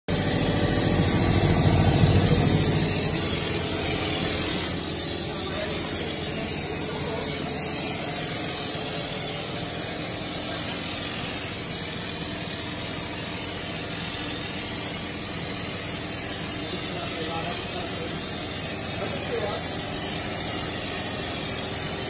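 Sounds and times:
electric motor humming: 0.1s - 22.0s
spray gun hissing: 0.3s - 22.0s.

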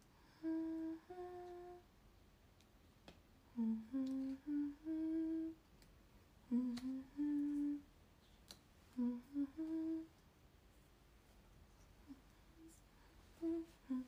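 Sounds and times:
woman humming: 0.0s - 1.9s, 3.5s - 5.6s, 6.5s - 7.9s, 8.9s - 10.2s, 12.0s - 14.0s.

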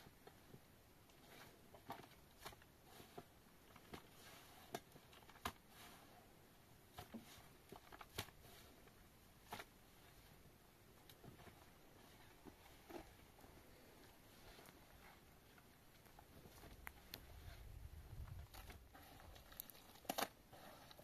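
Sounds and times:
faint small clicks and taps: 16.0s - 17.3s.

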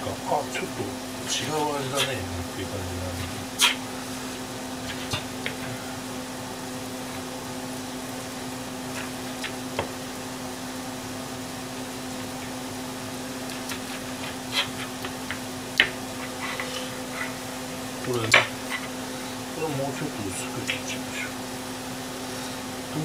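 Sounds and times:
steady low hum: 0.0s - 23.0s
knife cutting raw chicken: 13.4s - 17.4s
knife tapping cutting board: 15.0s - 16.0s.

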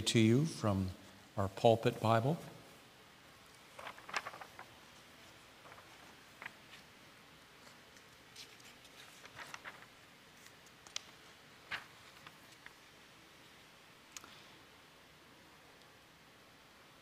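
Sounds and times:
paper pages rustling: 3.5s - 12.8s
page flicking: 3.7s - 4.8s, 8.0s - 12.8s.

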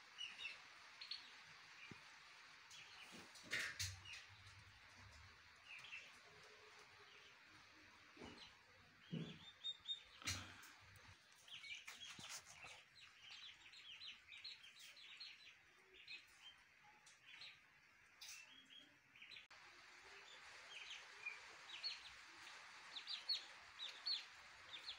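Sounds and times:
poults peeping: 2.7s - 16.6s, 20.2s - 24.9s.

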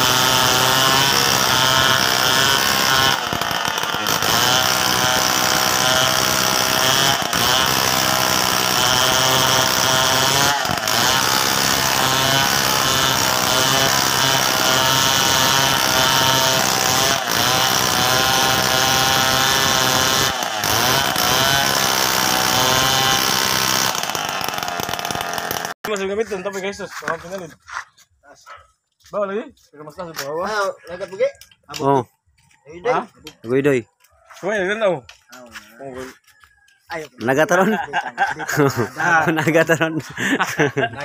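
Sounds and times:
chainsaw cutting log: 0.0s - 26.1s, 35.0s - 41.0s.

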